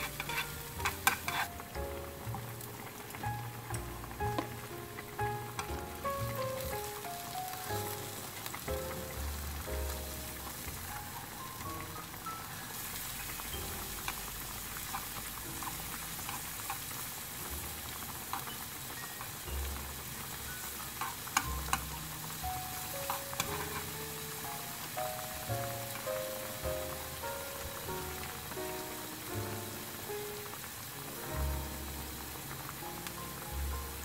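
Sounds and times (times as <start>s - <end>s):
chopsticks clicking against pan: 0.0s - 2.6s, 13.2s - 17.0s, 18.2s - 19.4s, 20.8s - 24.1s
onions sizzling in oil: 0.0s - 34.0s
soft background music: 0.0s - 34.0s.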